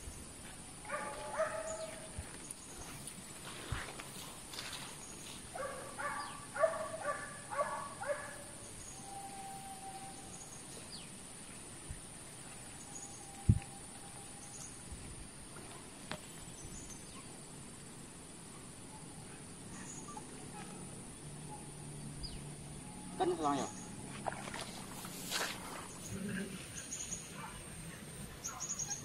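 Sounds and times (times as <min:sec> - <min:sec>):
dogs barking and yelping: 0:00.9 - 0:02.0, 0:05.6 - 0:08.4, 0:26.0 - 0:29.0.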